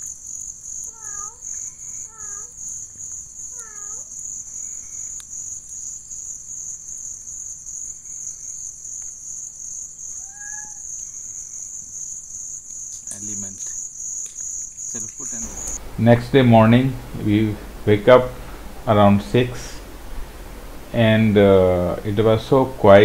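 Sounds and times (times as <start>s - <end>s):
night insects chirring: 0.0s - 23.0s
short rising and falling call: 15.2s - 23.0s.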